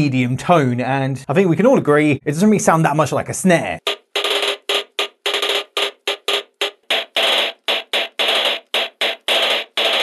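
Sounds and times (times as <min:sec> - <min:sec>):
electronic snare hits: 0:03.8 - 0:10.0.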